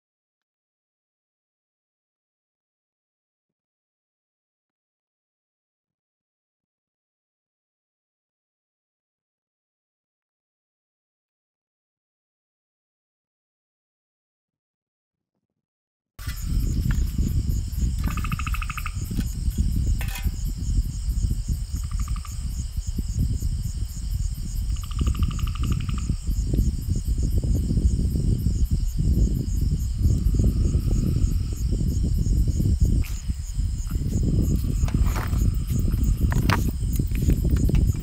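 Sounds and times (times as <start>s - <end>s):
cricket buzzes: 16.2s - 38.0s
night insects trilling: 16.2s - 38.0s.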